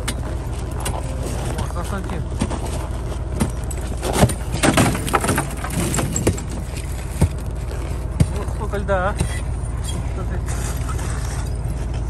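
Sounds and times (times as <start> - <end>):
steady low rumble: 0.0 - 12.0
ice slabs knocking and clinking: 1.9 - 8.6.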